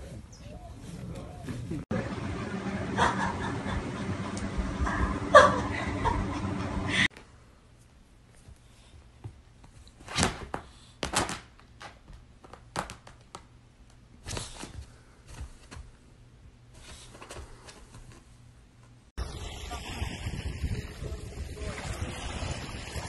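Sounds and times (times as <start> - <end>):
animals moving on couch: 14.2 - 18.6.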